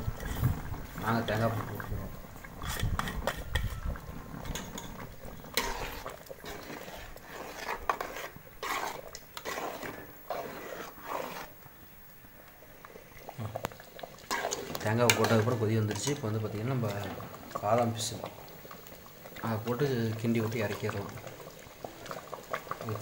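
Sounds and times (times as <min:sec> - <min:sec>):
milk bubbling: 0:00.0 - 0:23.0
metal spoon scraping steel pot: 0:02.6 - 0:11.6, 0:14.3 - 0:16.2.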